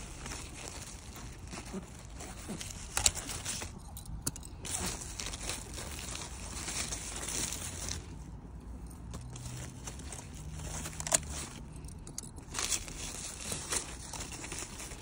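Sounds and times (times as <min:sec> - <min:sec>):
leaves and vines rustling: 0:00.0 - 0:15.0
secateurs cutting a vine: 0:10.4 - 0:14.2.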